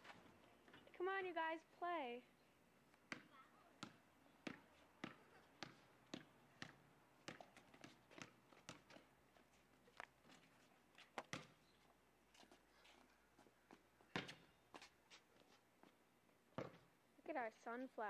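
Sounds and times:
footsteps on concrete: 9.5s - 16.0s.

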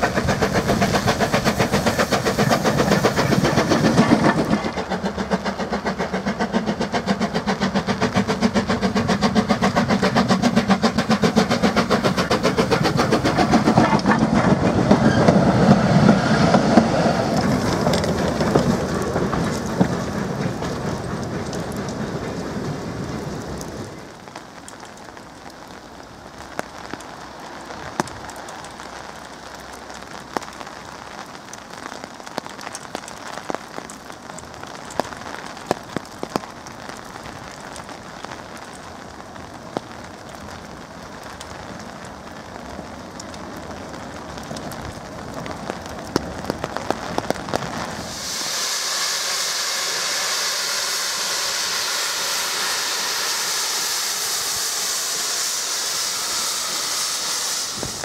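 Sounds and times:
steam locomotive hissing: 0.0s - 24.2s, 47.6s - 58.0s
raindrops tapping: 0.0s - 48.0s
steady rain: 0.0s - 58.0s.

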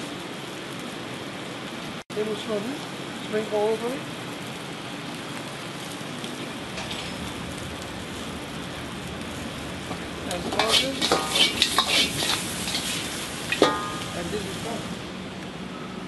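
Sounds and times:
food sizzling in a wok: 0.0s - 15.7s
ladle and spatula scraping wok: 6.7s - 7.3s, 9.9s - 14.8s.

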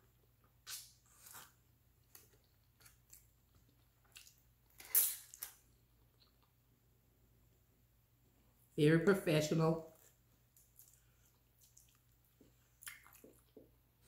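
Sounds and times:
person biting and chewing food: 0.4s - 6.6s, 10.0s - 13.7s.

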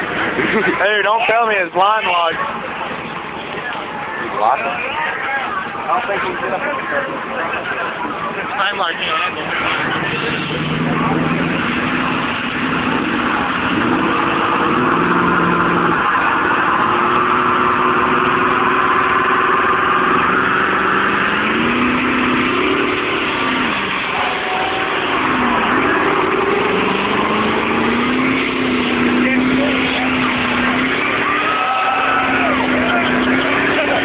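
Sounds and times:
tyres spinning on pavement: 0.0s - 34.0s
engine revving at high revs: 9.7s - 34.0s.

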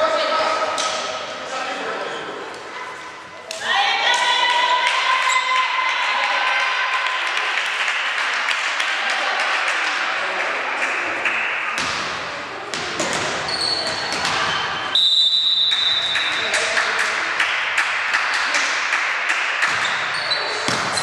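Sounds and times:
players moving and talking: 0.0s - 5.8s
volleyball struck and bouncing: 11.2s - 14.9s, 17.8s - 21.0s
high whistle-like tone: 14.9s - 16.1s.

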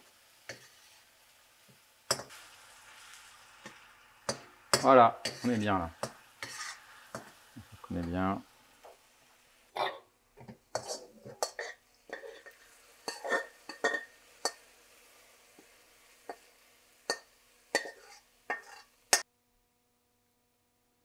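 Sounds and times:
metal spoon scraping a wok: 0.5s - 1.1s, 3.6s - 7.4s, 10.4s - 14.6s, 17.0s - 19.2s.

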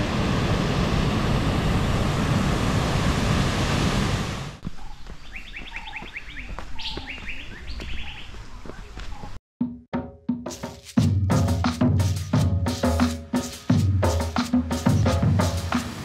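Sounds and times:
birds chirping: 4.6s - 9.4s
waterfall rushing: 14.2s - 16.0s.

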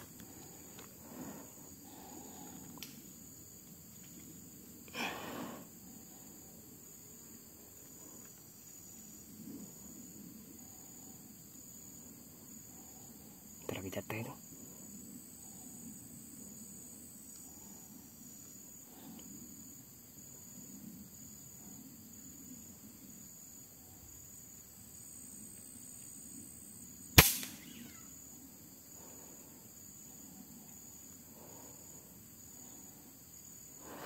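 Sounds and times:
insects chirping: 0.0s - 34.0s
air rifle shot: 27.2s - 28.0s.

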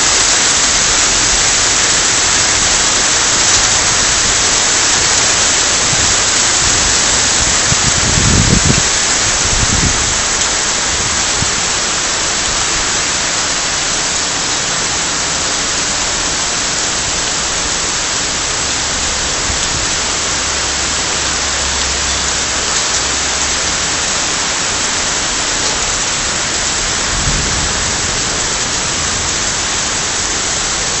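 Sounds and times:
heavy rain pouring: 0.0s - 31.0s
low rumbling: 17.0s - 31.0s.

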